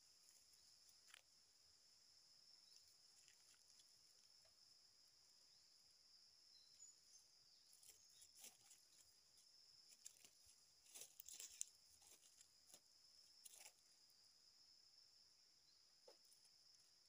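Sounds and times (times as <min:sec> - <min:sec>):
forest insects droning: 0:00.0 - 0:17.0
dry leaves crackling: 0:09.9 - 0:12.5.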